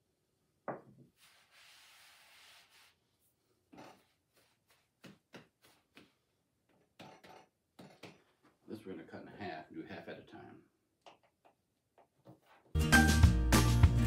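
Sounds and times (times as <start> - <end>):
dough kneaded by hand: 4.0 - 6.7.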